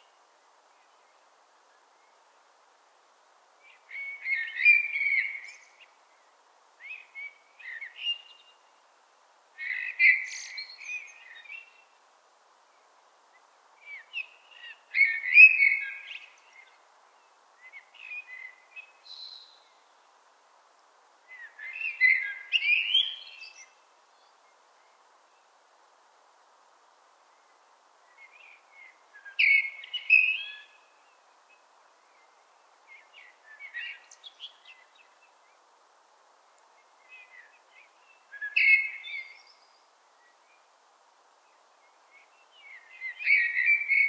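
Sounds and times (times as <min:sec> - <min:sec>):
blackbird singing: 0:03.9 - 0:05.8, 0:09.6 - 0:11.8, 0:13.9 - 0:16.7, 0:21.3 - 0:23.7, 0:29.2 - 0:30.8, 0:37.1 - 0:39.7, 0:42.4 - 0:44.0.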